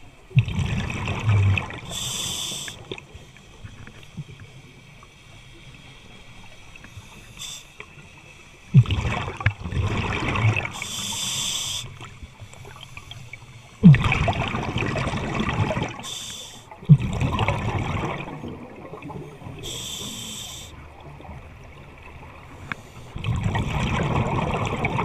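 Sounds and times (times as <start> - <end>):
exhaled bubbles gurgling: 0.0 - 4.8, 8.7 - 11.4, 13.8 - 22.5, 23.1 - 25.0
hissing regulator inhalations: 1.9 - 3.5, 6.8 - 8.7, 10.7 - 13.8, 16.0 - 16.8, 19.6 - 20.8.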